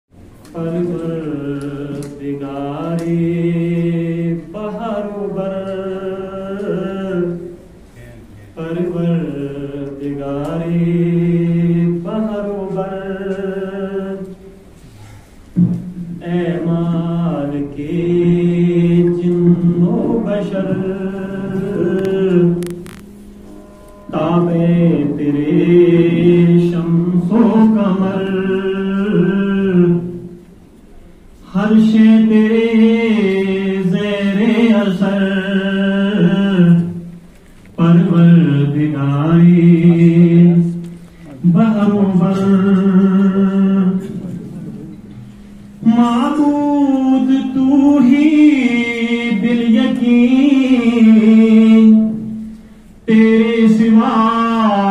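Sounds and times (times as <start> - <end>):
man chanting unaccompanied: 0.4 - 14.6, 16.2 - 23.0, 24.1 - 30.4, 31.4 - 37.1, 37.8 - 45.1, 53.0 - 54.9.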